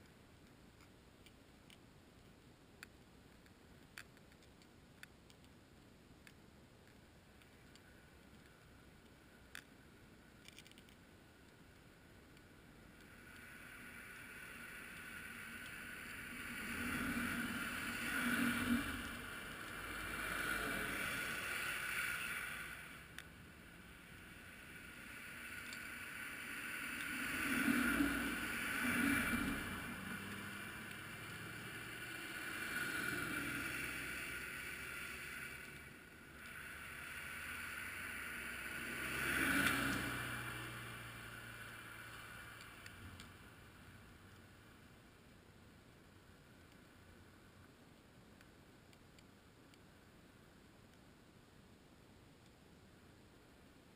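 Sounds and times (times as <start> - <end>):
muffled vehicles passing: 10.6 - 44.9.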